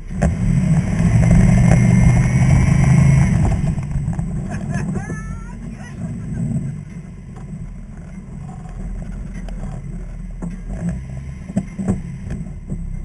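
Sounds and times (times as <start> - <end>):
engine rumbling at low revs: 0.0 - 13.0.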